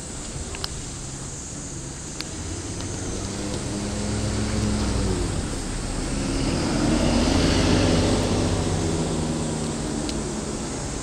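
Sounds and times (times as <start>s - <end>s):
vehicle engine rumbling past: 0.8s - 11.0s.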